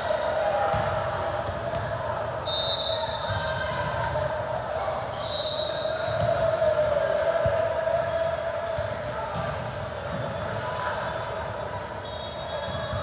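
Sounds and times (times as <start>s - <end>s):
murmur of voices: 0.0s - 13.0s
ball bouncing on court floor: 0.7s - 2.0s, 3.2s - 4.2s, 8.7s - 11.1s, 12.6s - 13.0s.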